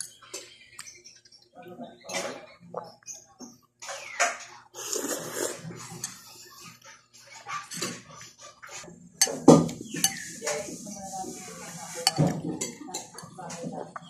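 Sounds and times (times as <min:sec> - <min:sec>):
cutlery clinking on ceramic bowl: 0:12.0 - 0:13.3.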